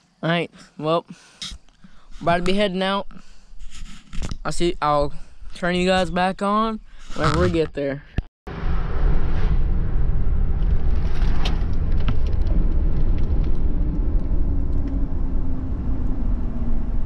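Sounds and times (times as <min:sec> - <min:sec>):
low road rumble: 0:01.5 - 0:17.0
faint engine hum: 0:08.8 - 0:17.0.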